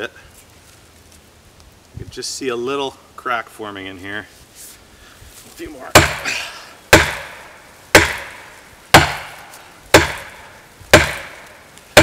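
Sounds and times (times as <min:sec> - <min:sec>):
axe striking tree trunk: 0:05.9 - 0:06.3, 0:06.9 - 0:12.0.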